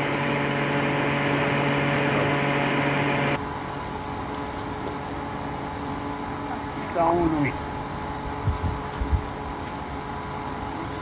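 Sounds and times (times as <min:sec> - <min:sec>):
electric heater humming: 0:00.0 - 0:11.0
fan whir with hiss: 0:00.0 - 0:11.0.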